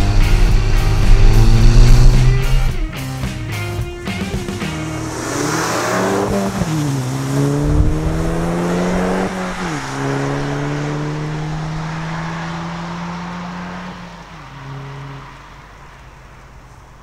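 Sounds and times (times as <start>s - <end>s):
car engine accelerating hard: 0.0s - 2.8s, 4.0s - 17.0s
tyre hiss on wet road: 4.7s - 7.6s.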